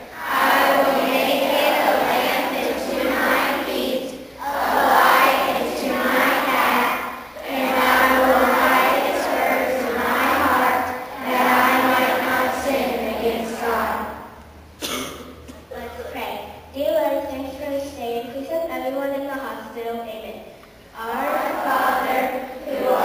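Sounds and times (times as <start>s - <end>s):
group reciting in unison: 0.0s - 14.4s, 21.0s - 23.0s.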